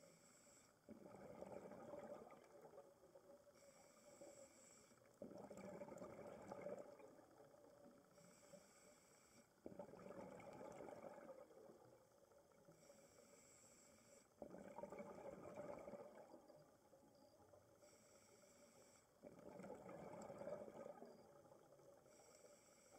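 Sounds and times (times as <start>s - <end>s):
bubbling exhalation underwater: 5.3s - 7.2s, 14.4s - 16.4s.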